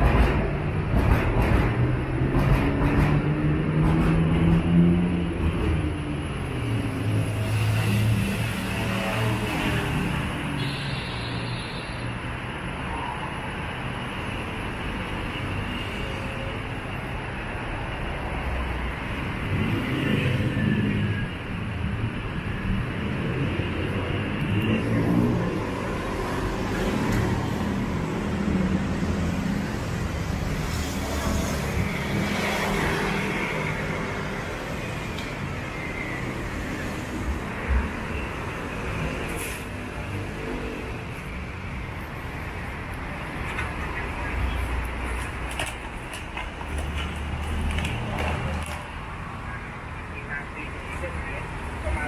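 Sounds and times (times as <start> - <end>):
road traffic hum: 0.0 - 52.0.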